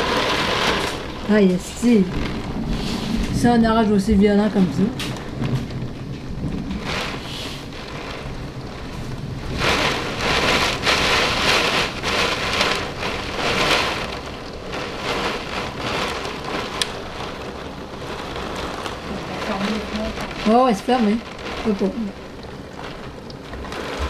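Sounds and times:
heavy rain downpour: 0.0s - 24.0s.

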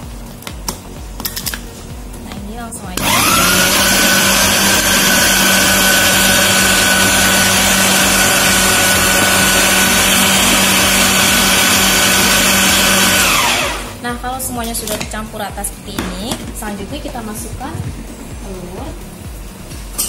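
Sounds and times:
food processor motor whine: 3.0s - 14.0s.

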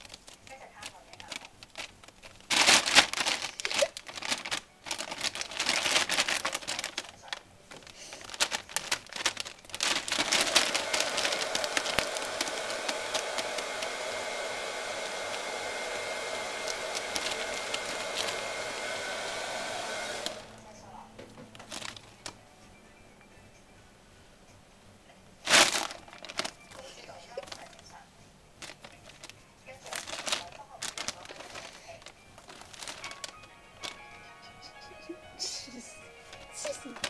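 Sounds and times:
plastic bags crinkling: 0.0s - 18.9s, 20.1s - 20.5s, 21.5s - 22.4s, 25.4s - 28.0s, 28.6s - 34.3s, 36.2s - 37.0s
steady whirring noise: 0.0s - 34.6s.

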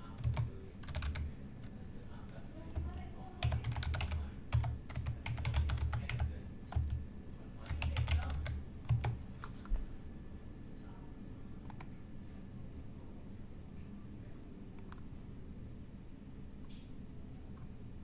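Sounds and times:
keyboard typing clicks: 0.1s - 1.3s, 2.7s - 7.0s, 7.6s - 9.2s.

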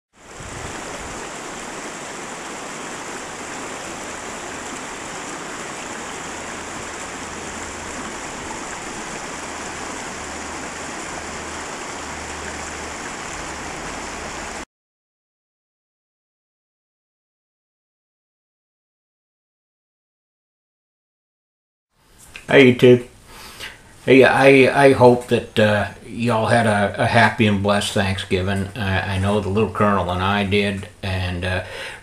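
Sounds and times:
river rushing over stones: 0.2s - 14.6s.

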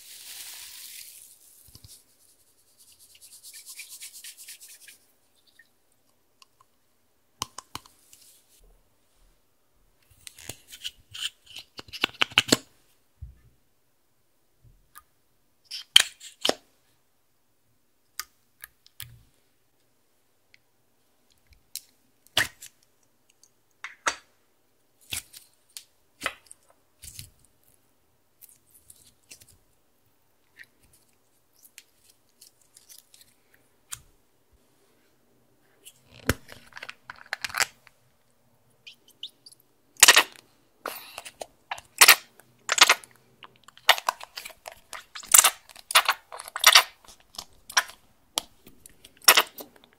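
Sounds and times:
slime popping and crackling: 40.0s - 40.4s, 41.7s - 43.1s, 43.7s - 48.0s.

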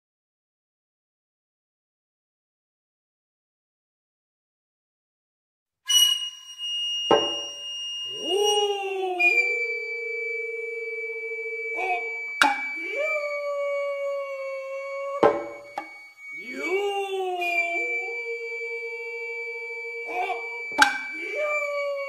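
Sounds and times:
long held vocal cries: 7.4s - 22.0s.

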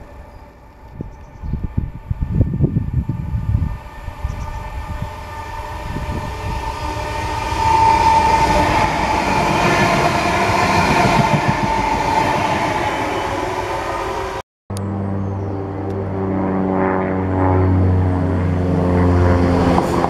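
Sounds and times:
low buffeting: 0.0s - 14.4s
traction motor whine: 0.0s - 14.4s
train rumbling on rails: 0.0s - 14.4s, 19.2s - 20.0s.

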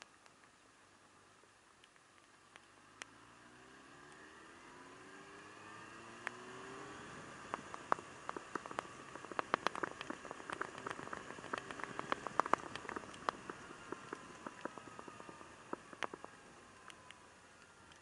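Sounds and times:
faint motorcycle engine hum: 0.0s - 18.0s
faint rain hiss: 0.0s - 18.0s
raindrops tapping on camera: 6.2s - 18.0s.

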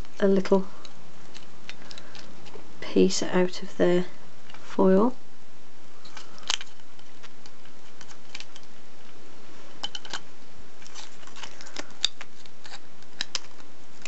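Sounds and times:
foil wrapper crinkling and tearing: 6.0s - 8.8s, 10.8s - 14.0s.

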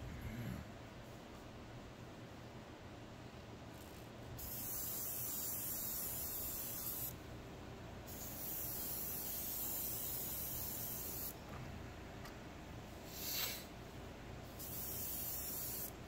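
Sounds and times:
airbrush hissing: 4.4s - 7.2s, 8.1s - 11.4s, 13.0s - 13.7s, 14.6s - 16.0s.

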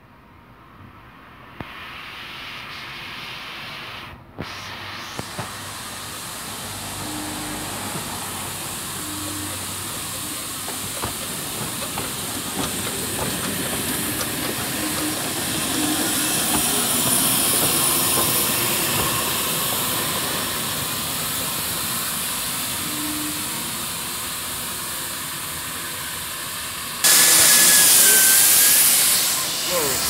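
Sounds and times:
steam locomotive hissing steam: 1.4s - 30.0s.

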